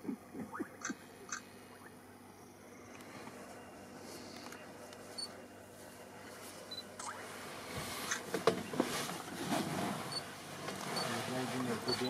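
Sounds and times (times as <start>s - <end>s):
frogs calling: 0.0s - 2.9s.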